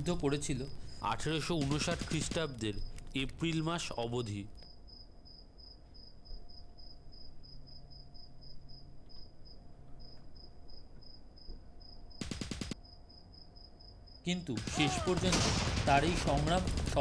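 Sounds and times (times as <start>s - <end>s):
burst of gunfire: 1.5s - 2.6s, 12.2s - 12.8s, 14.6s - 17.0s
cricket chirping: 4.5s - 14.9s.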